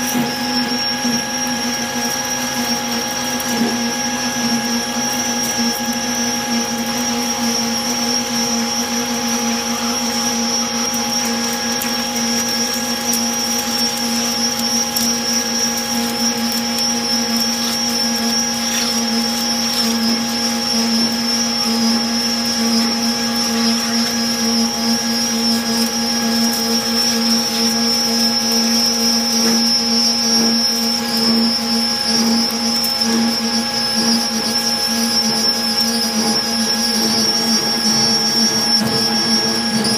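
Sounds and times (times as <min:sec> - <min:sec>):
high-pitched cutting whine: 0:00.0 - 0:39.9
lathe machine hum: 0:00.0 - 0:39.9.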